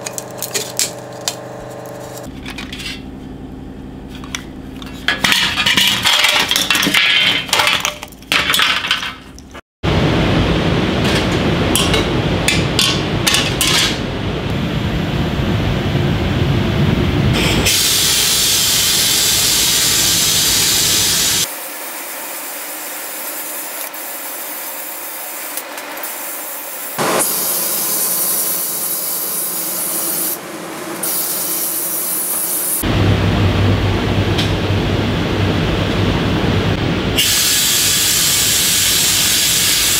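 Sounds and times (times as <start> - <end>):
sandblast gun hissing: 17.4 - 21.5, 23.3 - 32.8, 37.2 - 39.9.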